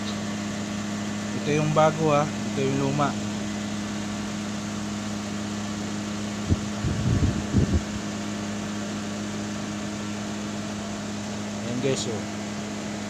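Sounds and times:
machine humming: 0.0s - 13.0s
dull low thumps: 6.4s - 8.0s.

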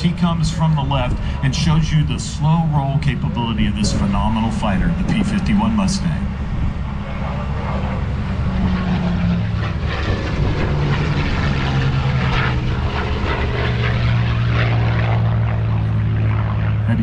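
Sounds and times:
propeller plane flying past: 0.0s - 17.0s.

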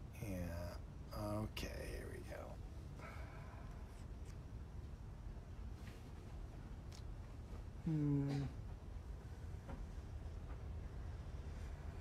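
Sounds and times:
low background rumble: 0.0s - 12.0s
man humming low: 7.8s - 8.6s.

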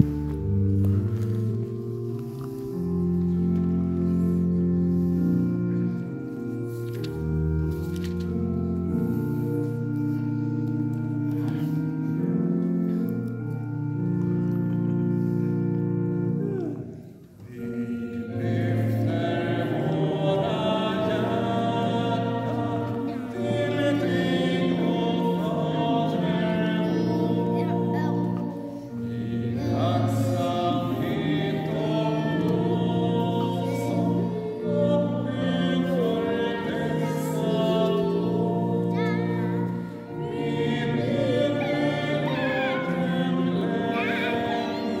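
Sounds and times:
congregation singing a hymn: 0.0s - 45.0s
held chords: 0.0s - 45.0s.

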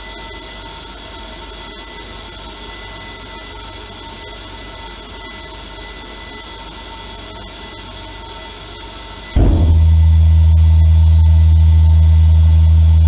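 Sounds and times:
thin steady whine: 0.0s - 13.0s
air rushing through combustor: 9.4s - 12.0s.

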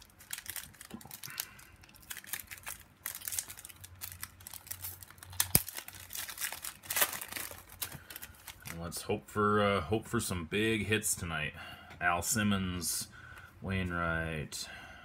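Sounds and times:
card pack wrapper crinkling: 0.0s - 8.9s.

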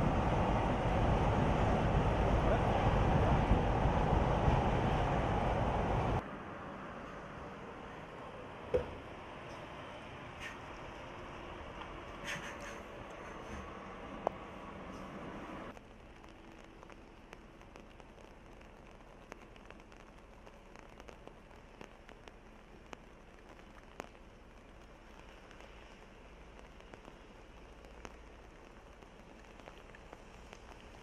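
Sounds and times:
light rain hiss: 0.0s - 31.0s
raindrop ticks: 15.7s - 31.0s.

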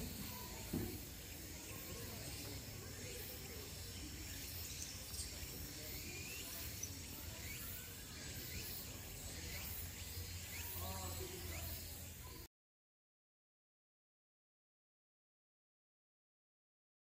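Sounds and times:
faint rising chirps: 0.0s - 12.5s.

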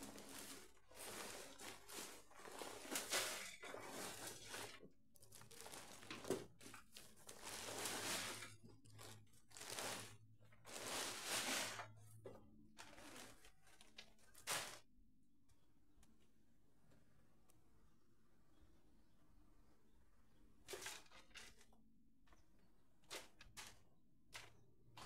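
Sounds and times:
plastic grow bag crinkling: 0.0s - 14.9s, 23.0s - 25.0s.

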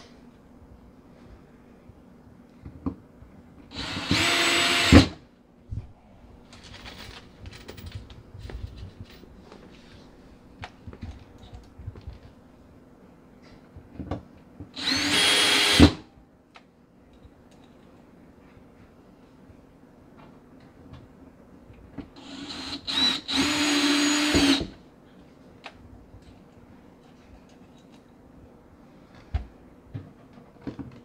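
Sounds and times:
cordless drill driving screws: 3.7s - 5.1s, 14.8s - 16.0s, 22.2s - 24.7s.

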